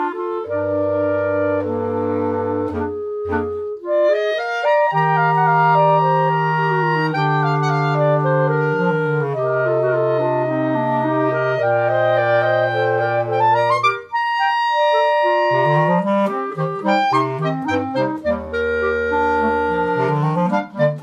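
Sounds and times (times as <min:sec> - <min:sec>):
low bass clarinet line: 0:00.0 - 0:21.0.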